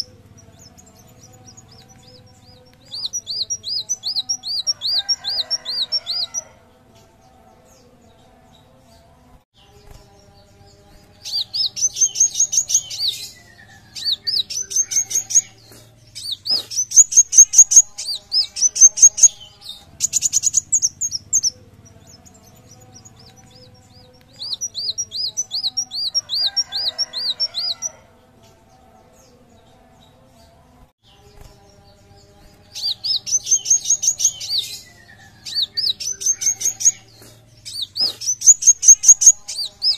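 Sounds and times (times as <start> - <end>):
bird singing whistled notes: 11.1 - 27.8, 32.7 - 39.9.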